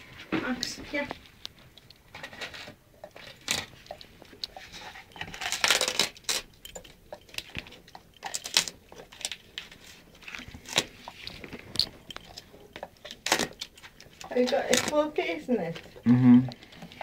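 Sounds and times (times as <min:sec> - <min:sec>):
wallpaper tearing and crinkling: 0:04.6 - 0:06.5, 0:07.4 - 0:15.1.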